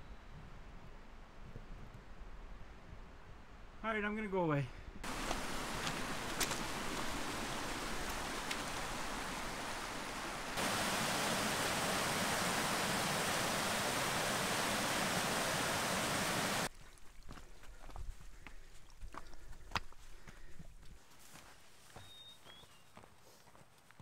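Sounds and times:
creek rushing over rocks: 5.0s - 16.7s
small cascade close up: 5.0s - 16.7s.

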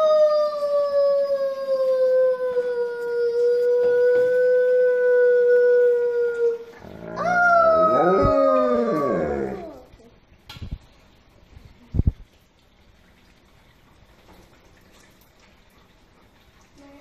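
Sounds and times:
dog howling: 0.0s - 9.9s.

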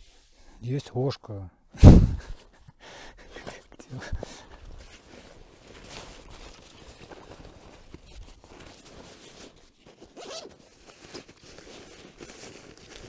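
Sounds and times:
gear rustling: 4.5s - 13.0s
zipper rasping: 8.6s - 10.7s.

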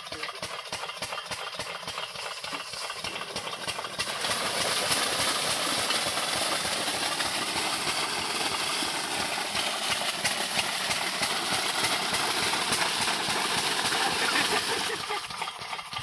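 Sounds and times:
diesel engine running: 0.0s - 16.0s
water gushing from pipe: 0.0s - 16.0s.

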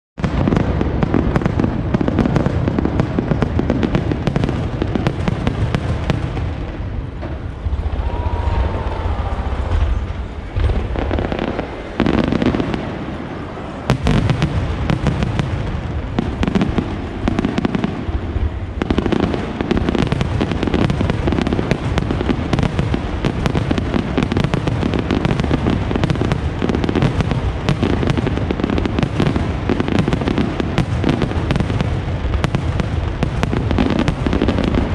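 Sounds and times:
firework booms and crackle: 0.2s - 34.9s
sharp loud crack: 7.1s - 15.5s.

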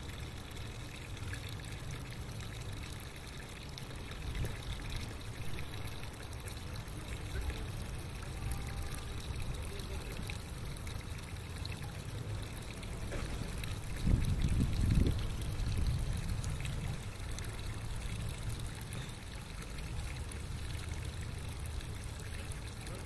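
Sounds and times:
water trickling faintly: 0.0s - 23.0s
wind rumble on microphone: 13.9s - 17.1s.

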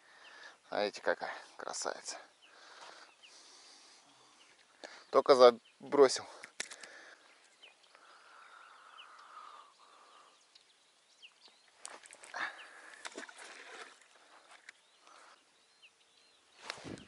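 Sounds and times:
small birds chirping: 0.0s - 17.0s
fishing rods clicking and rustling: 6.3s - 8.0s, 11.8s - 15.1s.

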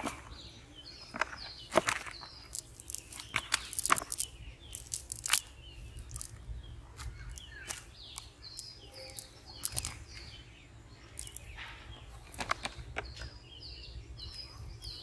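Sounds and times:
birds chirping: 0.0s - 15.0s
net rustling and crackling: 1.1s - 6.4s, 7.0s - 10.2s, 11.1s - 11.6s
sharp irregular clicks: 2.4s - 6.4s, 7.3s - 10.0s, 11.1s - 11.7s.

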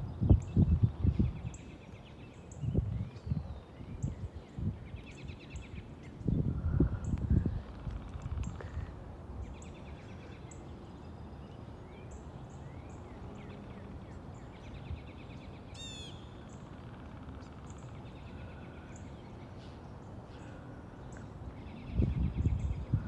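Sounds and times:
wind rumbling: 0.0s - 1.6s, 5.8s - 10.1s, 21.3s - 23.0s
small birds chirping: 0.0s - 23.0s.

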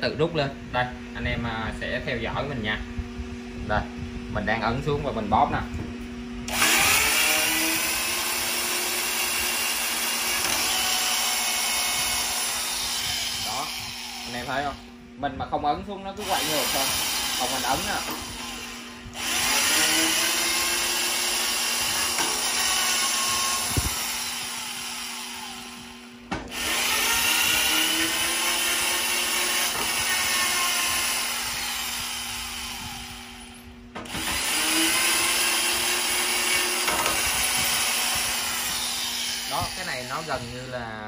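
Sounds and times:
tapping machine cutting thread: 21.6s - 24.0s, 34.0s - 38.3s.

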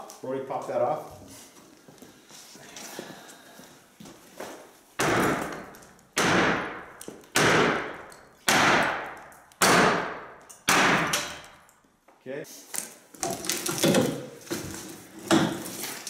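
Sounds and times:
sledgehammer striking wooden post: 5.0s - 11.6s, 15.2s - 15.7s.

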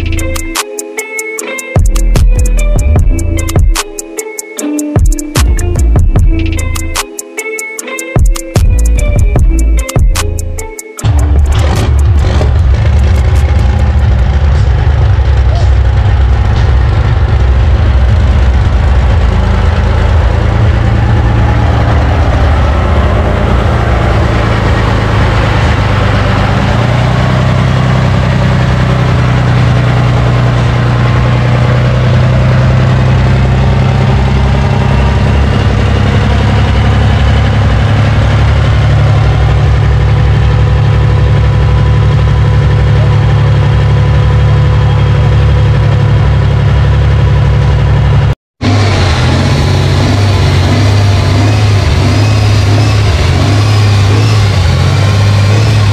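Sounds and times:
tractor engine idling loudly: 11.0s - 55.9s.

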